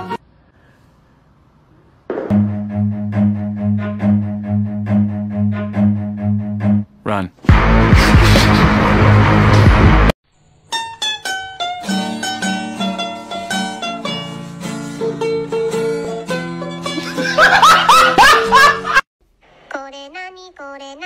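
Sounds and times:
plucked-string melody: 0:02.3 - 0:06.8, 0:10.7 - 0:17.3.

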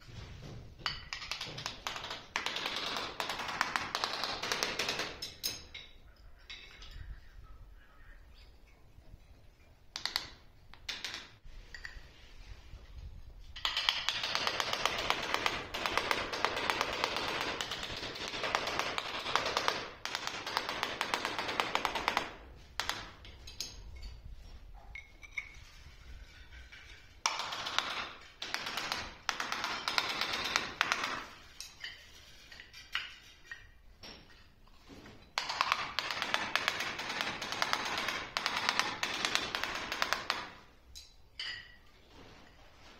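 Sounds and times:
tile scribe scratching ceramic: 0:25.5 - 0:28.0.

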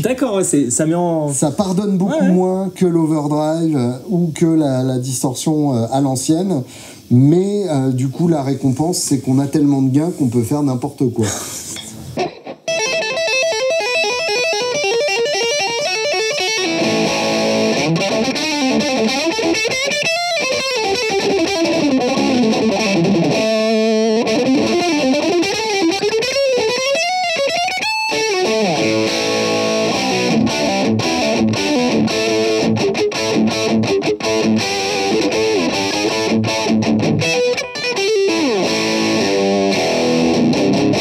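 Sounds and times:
distorted electric guitar: 0:11.2 - 0:41.0.

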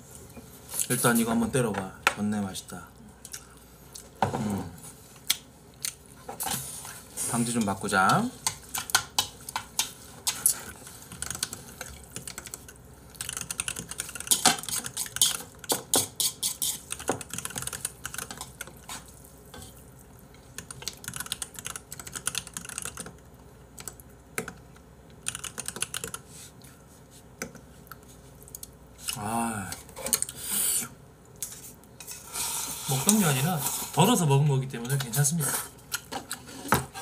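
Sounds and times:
keyboard typing: 0:13.2 - 0:15.4, 0:16.9 - 0:18.3, 0:20.6 - 0:23.1, 0:25.2 - 0:26.2.

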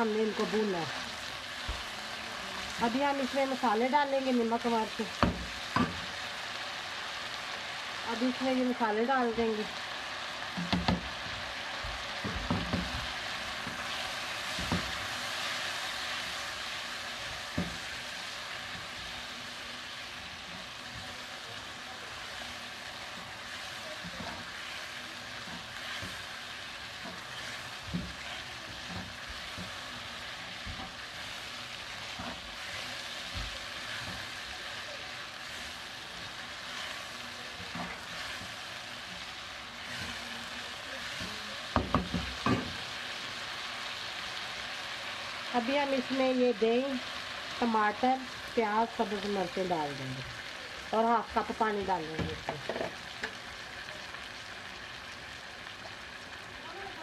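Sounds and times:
meat sizzling in oil: 0:00.0 - 0:57.0.

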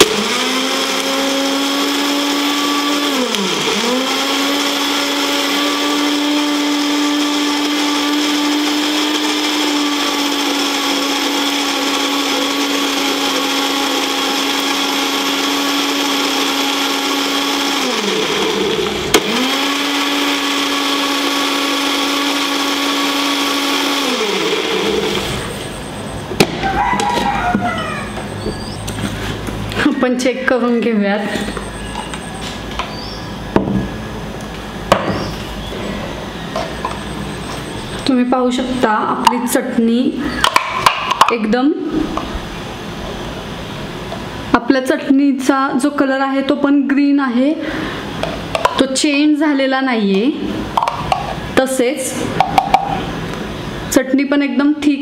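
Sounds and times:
blender motor running: 0:00.0 - 0:26.0.

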